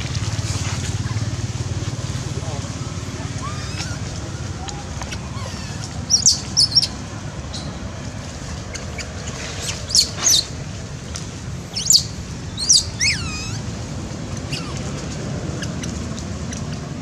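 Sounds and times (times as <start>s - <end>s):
steady low rumble: 0.0s - 17.0s
infant monkey squealing: 3.2s - 7.7s, 8.7s - 10.5s, 11.8s - 13.8s, 14.4s - 15.0s.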